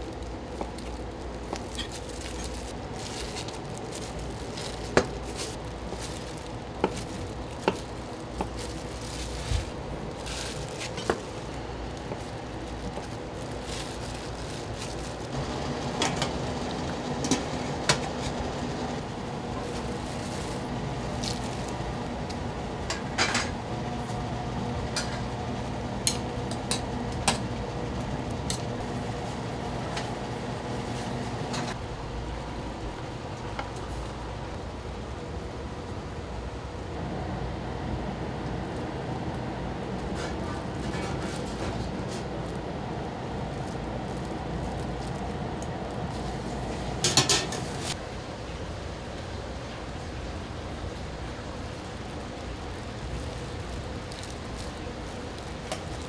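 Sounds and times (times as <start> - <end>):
steady hum: 0.0 - 56.0
utensils and dishes clinking: 1.5 - 3.6, 22.8 - 23.6, 47.0 - 48.0.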